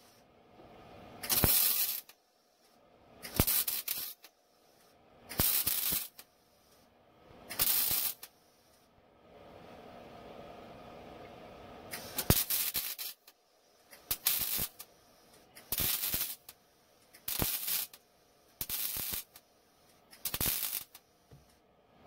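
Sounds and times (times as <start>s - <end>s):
welder crackling bursts: 1.2s - 2.2s, 3.2s - 4.3s, 5.3s - 6.3s, 7.5s - 8.3s, 11.9s - 14.9s, 15.6s - 16.6s, 17.2s - 18.0s, 18.6s - 19.4s, 20.1s - 21.0s.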